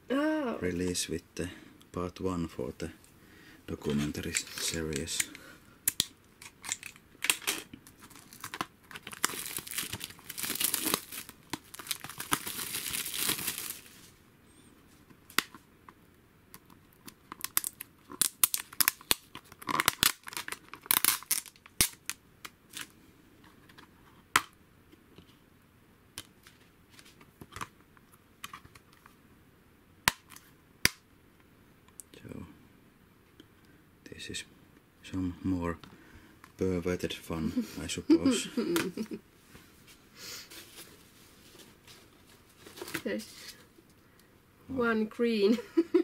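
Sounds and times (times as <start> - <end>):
plastic shrink-wrap tearing and crinkling: 6.0 - 14.0, 17.2 - 22.9.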